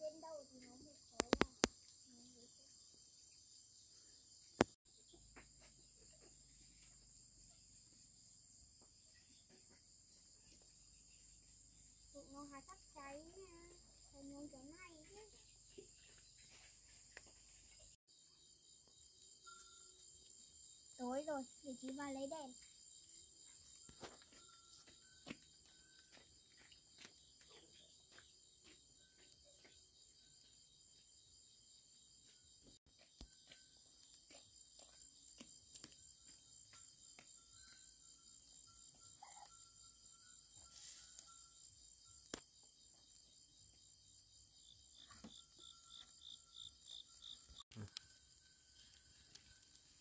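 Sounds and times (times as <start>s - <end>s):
high-pitched insect chorus: 0.0s - 50.0s.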